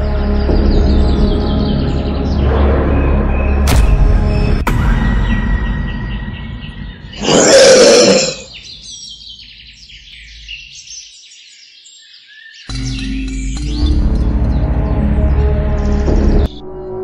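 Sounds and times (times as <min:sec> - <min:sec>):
birdsong chirping: 0:00.0 - 0:17.0
tiger growling roar: 0:07.2 - 0:08.5.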